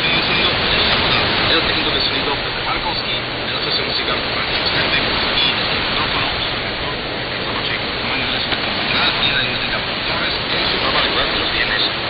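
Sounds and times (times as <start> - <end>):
faint speech on radio: 0.0 - 12.0
radio hiss and static: 0.0 - 12.0.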